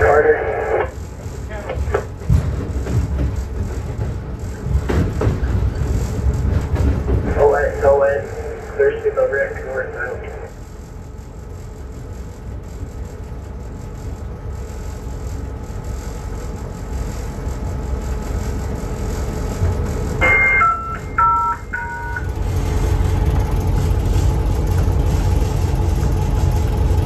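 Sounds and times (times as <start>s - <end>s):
train rumbling: 0.0s - 27.0s
locomotive horn blasts: 20.2s - 22.4s.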